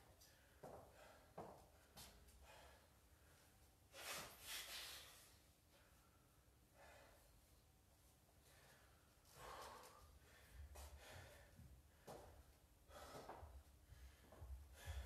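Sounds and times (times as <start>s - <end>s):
heavy breathing: 0.4s - 7.5s, 8.4s - 15.0s.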